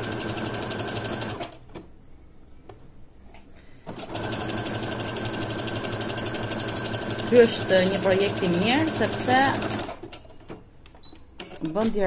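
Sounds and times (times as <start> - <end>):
sewing machine stitching: 3.9 - 10.3.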